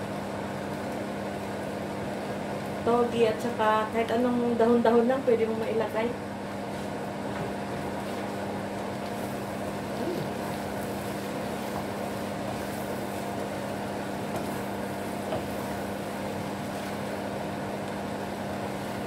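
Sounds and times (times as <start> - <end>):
steady motor hum: 0.0 - 19.0
food sizzling in a pan: 6.6 - 19.0
wooden spatula scraping and tapping: 14.3 - 14.6.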